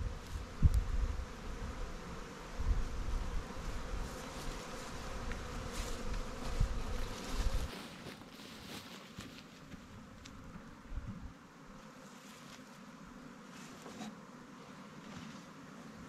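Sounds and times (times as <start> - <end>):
honey bees buzzing: 0.0 - 16.0.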